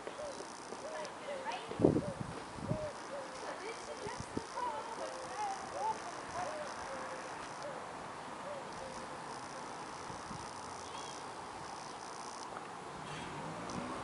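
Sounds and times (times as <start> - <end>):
faint bird chirps: 10.8 - 11.3.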